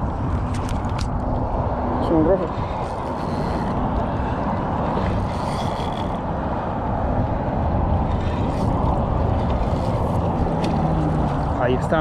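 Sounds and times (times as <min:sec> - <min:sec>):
fishing reel whirring: 0:02.3 - 0:06.3, 0:08.0 - 0:10.9.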